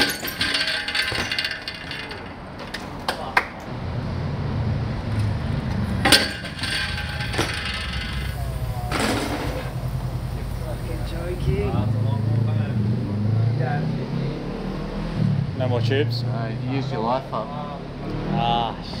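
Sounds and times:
bike clattering on paving: 0:00.0 - 0:03.7, 0:05.2 - 0:11.6.

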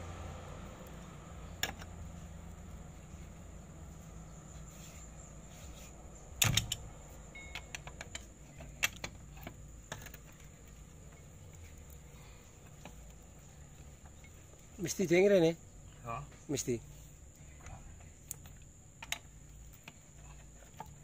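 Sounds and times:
lug wrench clinking on wheel nuts: 0:06.4 - 0:10.4.

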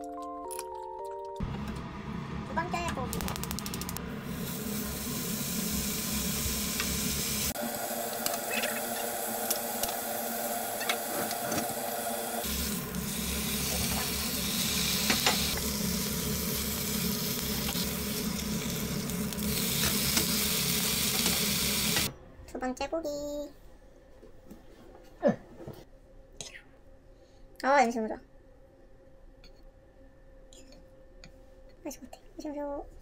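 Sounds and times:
beef sizzling in frying pan: 0:04.3 - 0:22.1.

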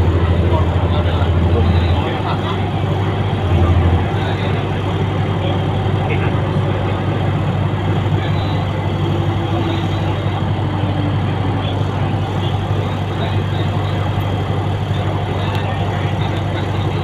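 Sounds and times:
train running noise from inside: 0:00.0 - 0:17.0.

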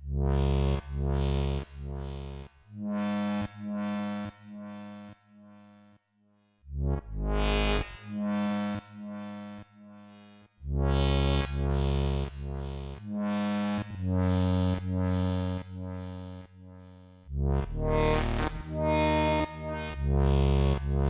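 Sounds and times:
glitchy electronic music: 0:17.6 - 0:21.0.

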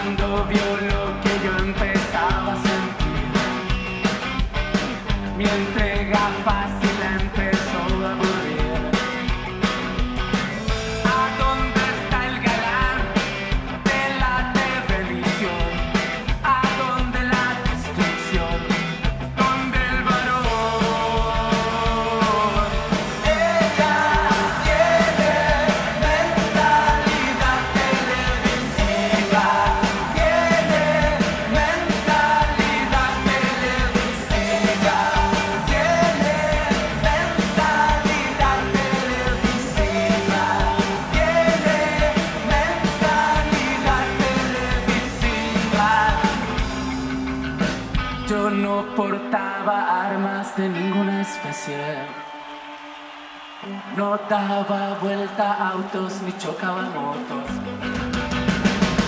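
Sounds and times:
person singing: 0:00.0 - 0:03.6, 0:05.3 - 0:09.2, 0:11.0 - 0:46.7, 0:48.3 - 0:52.3
live rock band playing: 0:00.0 - 0:54.0, 0:55.9 - 0:59.0.

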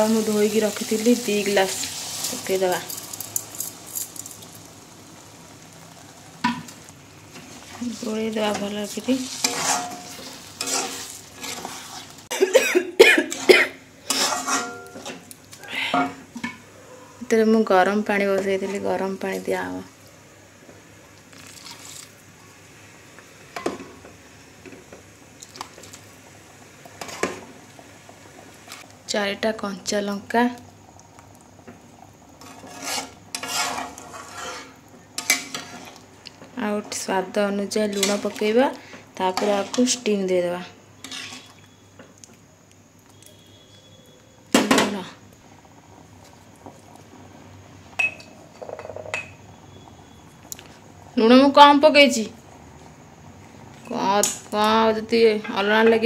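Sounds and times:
hot water pouring and splashing: 0:00.0 - 0:16.6, 0:17.9 - 0:41.7, 0:44.5 - 0:48.0.

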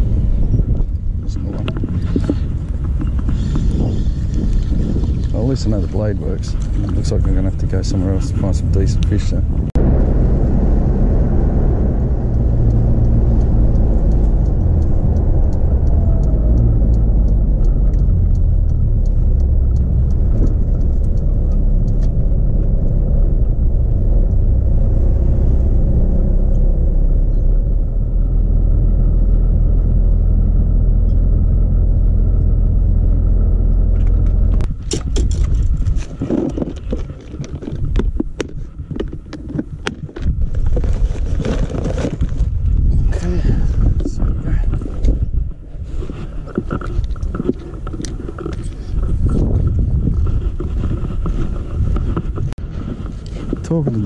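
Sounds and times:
car engine and road noise: 0:00.0 - 0:54.0
clicks and rattles: 0:33.7 - 0:42.5.

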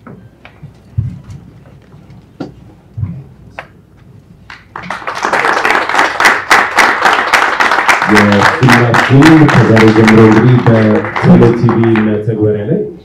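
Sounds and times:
people applauding: 0:04.5 - 0:12.4.

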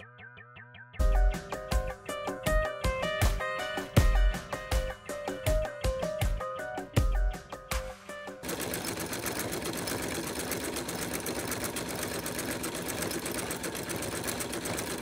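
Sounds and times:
sewing machine running fast: 0:08.4 - 0:15.0.

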